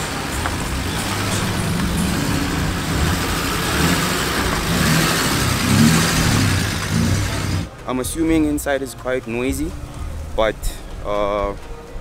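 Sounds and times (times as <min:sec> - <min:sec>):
car engine rumbling at low revs: 0:00.0 - 0:07.7.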